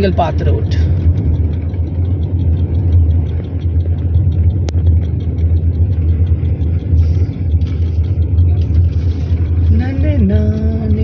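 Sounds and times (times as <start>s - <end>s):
car engine and tyre rumble: 0.0s - 11.0s.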